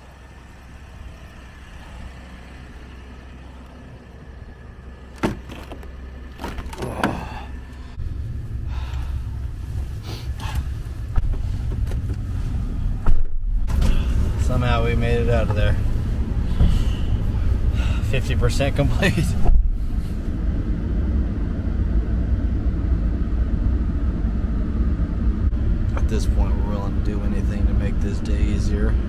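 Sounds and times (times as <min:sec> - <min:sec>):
truck engine idling: 0:00.0 - 0:29.0
car door thudding shut: 0:05.2 - 0:07.3.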